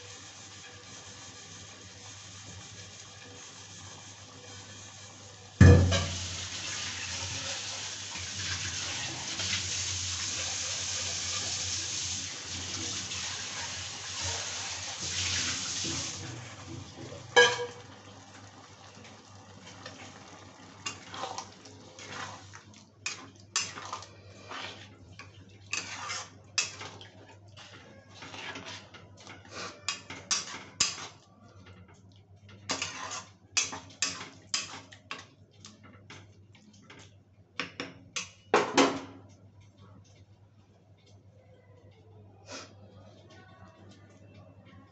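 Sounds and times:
ladle scraping metal pan: 20.8s - 25.0s, 25.7s - 31.1s, 32.7s - 34.8s.

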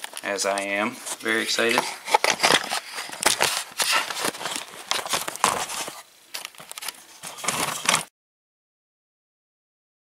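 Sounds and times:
camera handling noise: 1.7s - 8.1s.

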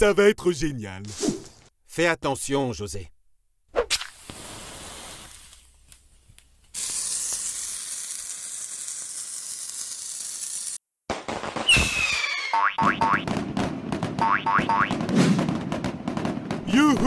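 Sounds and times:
firework fuse sizzling: 3.9s - 10.8s.

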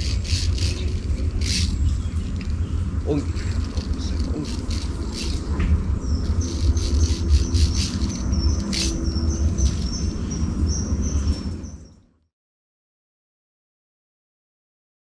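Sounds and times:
small bird chirping: 0.0s - 12.0s
steady low rumble: 0.0s - 12.0s.

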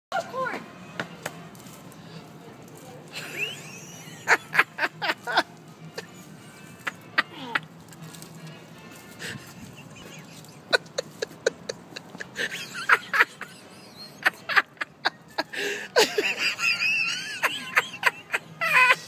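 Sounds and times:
people laughing: 3.1s - 7.7s, 9.2s - 19.0s.

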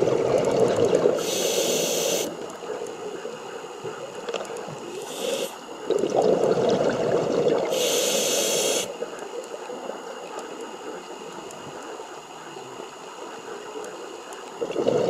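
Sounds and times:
bubbling underwater: 0.0s - 1.2s, 5.9s - 7.7s, 14.6s - 15.0s
regulator breathing hiss: 1.2s - 2.4s, 4.9s - 5.6s, 7.7s - 8.9s.

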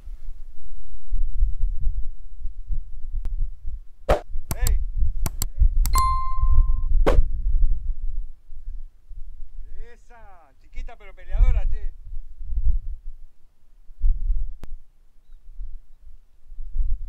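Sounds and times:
short pops: 4.1s - 6.0s
mouse clicks: 4.5s - 6.1s
bell ding: 6.0s - 6.9s.

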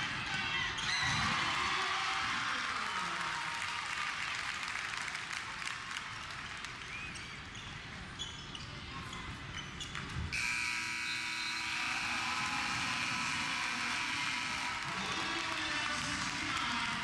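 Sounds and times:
crowd noise: 0.0s - 17.0s
sneakers squeaking: 6.9s - 10.4s
electronic scoreboard horn: 10.4s - 14.9s.

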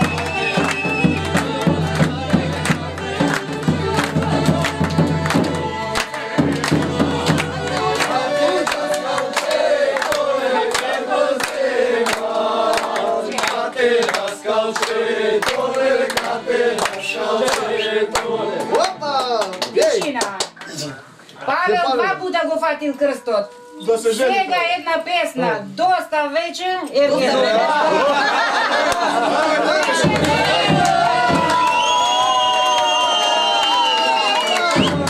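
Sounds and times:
men singing together: 0.0s - 19.0s, 27.2s - 31.7s
men clapping in rhythm: 0.0s - 20.8s, 28.3s - 35.0s.

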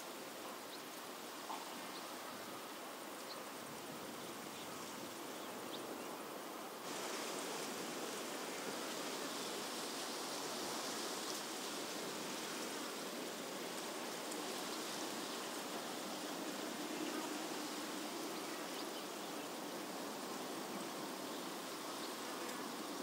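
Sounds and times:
outdoor rushing hiss: 6.7s - 23.0s.

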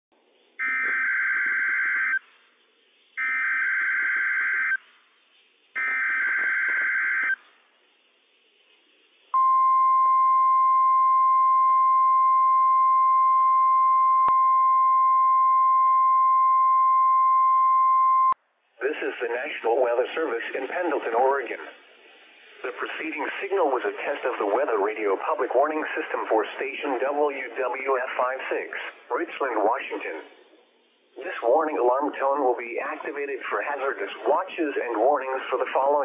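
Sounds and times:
steady warning alarm tone: 0.6s - 2.2s, 3.2s - 4.8s, 5.8s - 7.4s.

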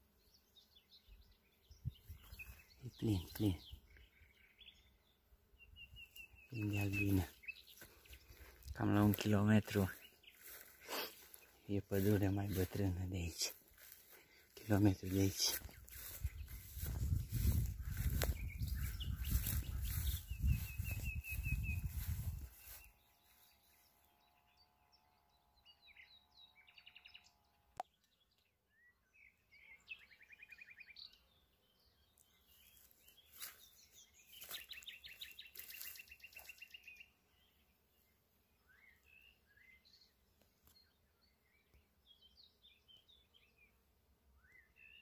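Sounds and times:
songbirds trilling: 0.0s - 45.0s
low microphone rumble: 15.9s - 22.6s.

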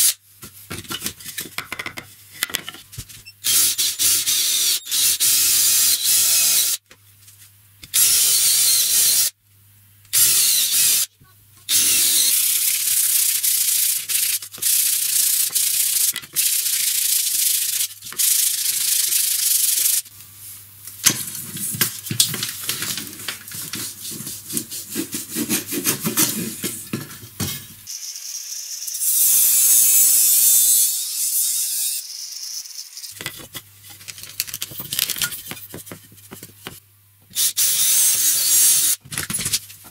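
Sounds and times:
wood being sanded by hand: 23.8s - 26.7s.

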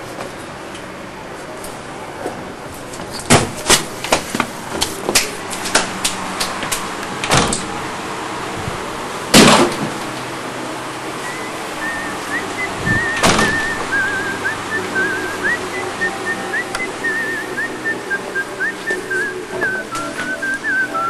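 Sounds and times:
thin wavering whistle: 11.2s - 21.0s.

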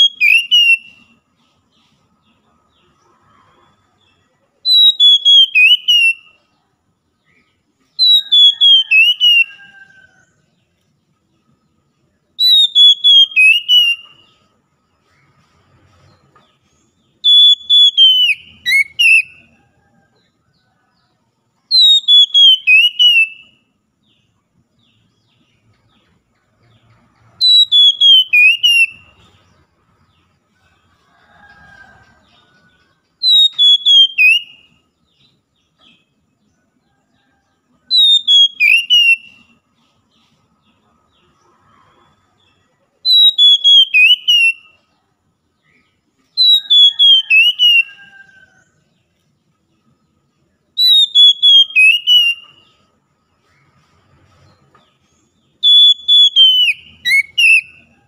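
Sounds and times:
bird singing whistled notes: 0.0s - 1.9s, 4.6s - 10.4s, 11.4s - 14.6s, 16.7s - 19.6s, 21.6s - 24.2s, 26.7s - 29.6s, 32.3s - 36.2s, 37.8s - 40.4s, 42.4s - 45.0s, 45.6s - 48.4s, 50.7s - 52.9s, 55.2s - 58.0s.

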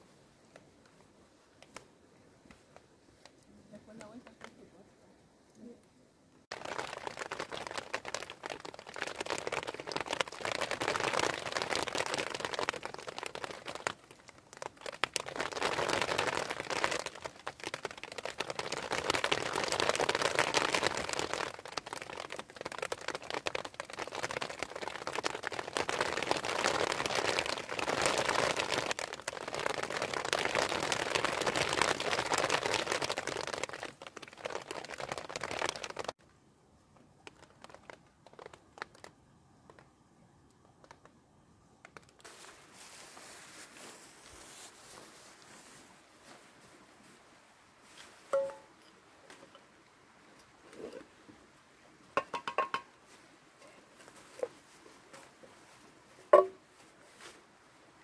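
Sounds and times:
hail on plastic sheeting: 6.5s - 36.2s, 37.2s - 39.9s.

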